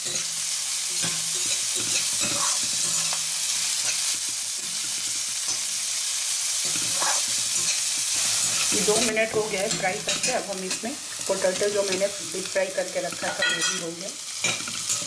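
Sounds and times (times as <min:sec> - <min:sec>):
vegetables sizzling in hot oil: 0:00.0 - 0:15.0
spatula scraping metal pan: 0:01.0 - 0:05.7, 0:06.6 - 0:10.9.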